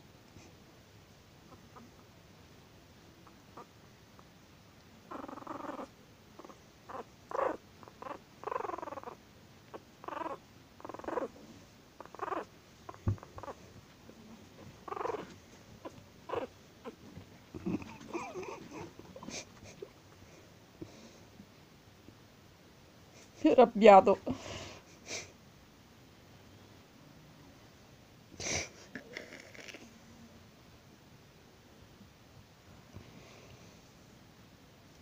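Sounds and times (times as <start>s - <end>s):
puppy growling and yipping: 3.2s - 3.8s, 5.1s - 11.4s, 12.0s - 13.7s, 14.4s - 19.9s.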